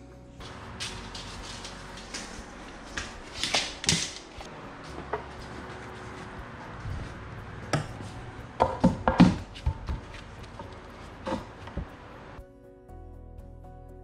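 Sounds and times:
wooden post knocks and clunks: 8.6s - 11.9s.

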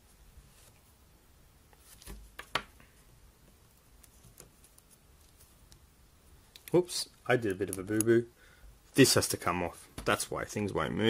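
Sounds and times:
small clicks and taps: 6.5s - 6.8s.

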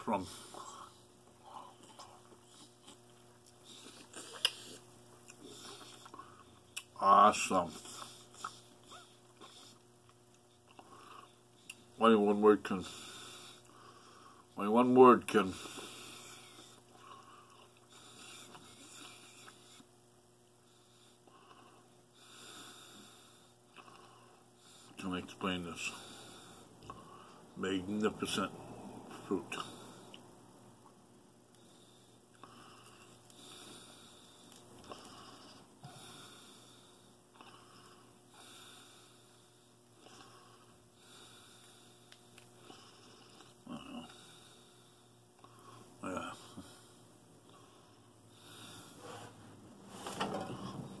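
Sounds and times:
low steady hum: 0.0s - 51.0s
slow breathing through nose: 31.5s - 43.5s, 46.5s - 50.0s
faint breaths through nose: 44.1s - 51.0s.

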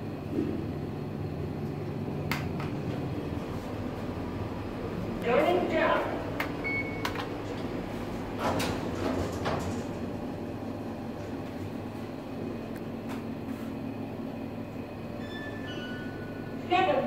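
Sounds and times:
elevator car humming: 0.0s - 17.0s
elevator doors sliding shut: 6.5s - 10.4s, 15.1s - 16.6s
elevator panel beep: 6.6s - 7.3s, 15.1s - 16.4s.

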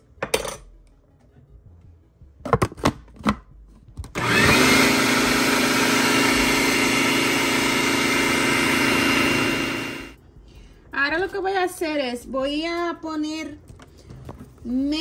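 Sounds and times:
food processor grinding: 4.2s - 10.2s.

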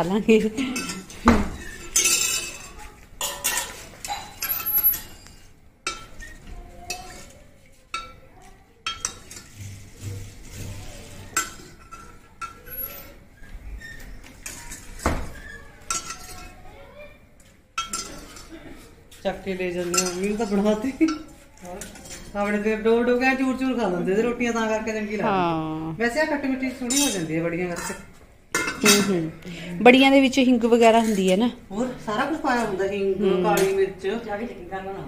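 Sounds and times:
ladle clinking against steel pot: 8.8s - 9.6s, 17.8s - 18.5s.

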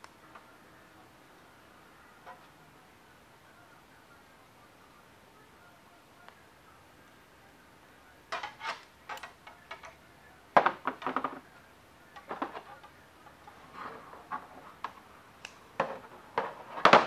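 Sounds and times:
wire clicking and clinking: 8.3s - 10.1s.

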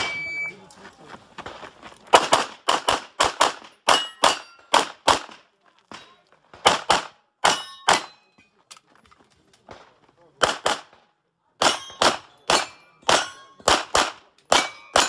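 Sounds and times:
pistol shots: 2.1s - 5.4s, 6.5s - 8.2s, 10.4s - 15.0s.

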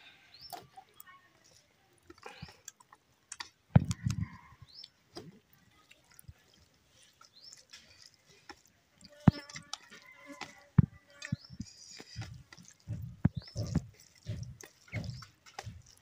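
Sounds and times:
fingers squishing rice: 0.4s - 16.0s
bird chirps: 11.1s - 16.0s.

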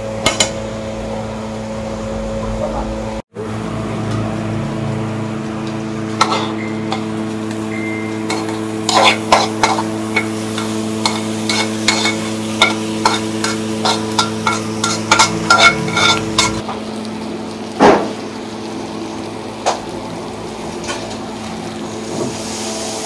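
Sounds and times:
steady hum: 0.0s - 22.3s
food frying in a pan: 3.4s - 23.0s
metal spatula clinking on pan: 8.3s - 16.6s.

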